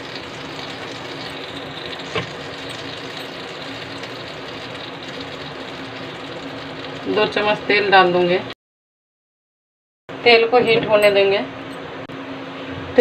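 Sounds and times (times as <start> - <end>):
gas burner hissing: 0.0 - 8.0.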